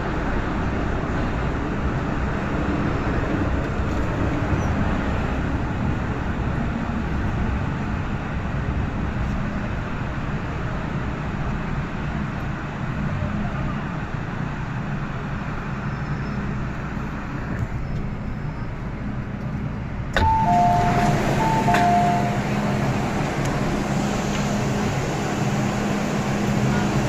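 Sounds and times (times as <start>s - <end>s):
train humming: 0.0s - 27.0s
two-note door chime: 20.2s - 22.4s.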